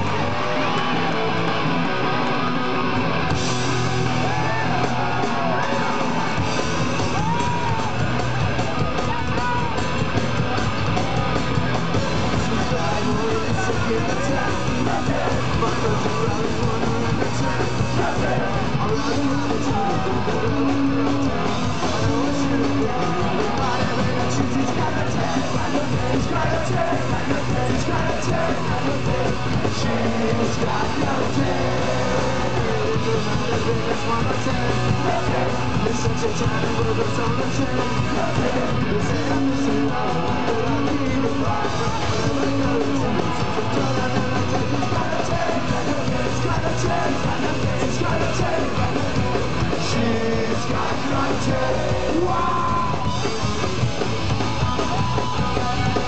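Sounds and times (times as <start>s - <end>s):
punk rock band playing live: 0.0s - 56.0s
person singing: 12.2s - 53.3s.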